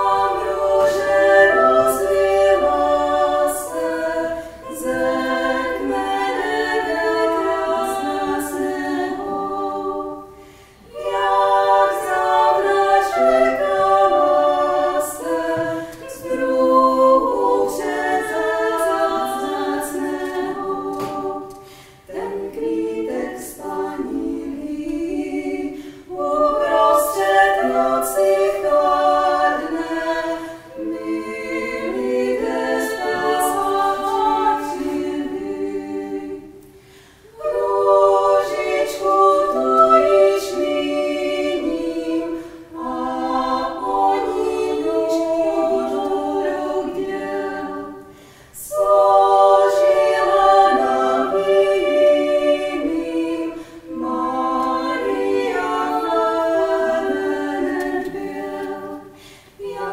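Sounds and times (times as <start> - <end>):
female a cappella ensemble singing: 0.0 - 59.9.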